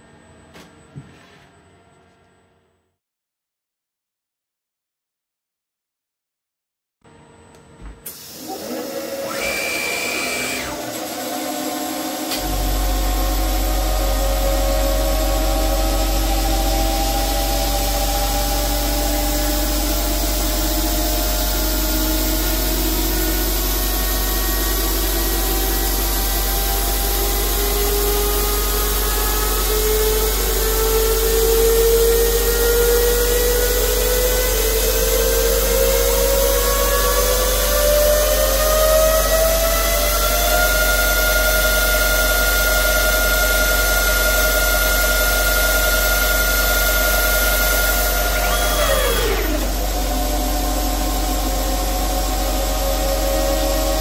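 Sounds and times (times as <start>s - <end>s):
lathe spindle whine rising: 8.1s - 54.0s
steady low hum: 12.4s - 26.8s.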